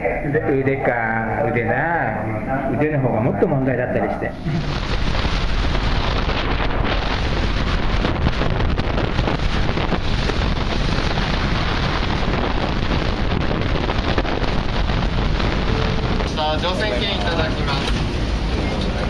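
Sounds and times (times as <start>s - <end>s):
wind buffeting microphone: 0.0s - 19.0s
sea rushing along hull: 4.1s - 19.0s.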